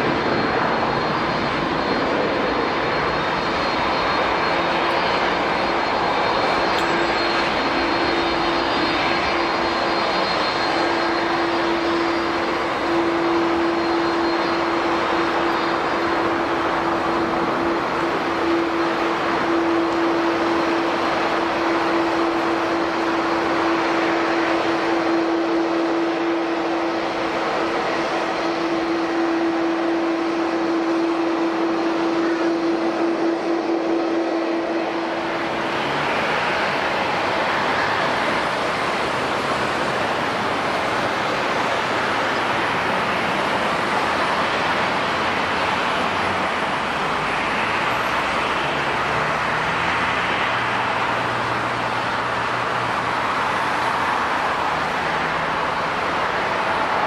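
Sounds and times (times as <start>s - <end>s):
constant hum: 0.0s - 47.2s
jet engines running: 0.0s - 57.0s.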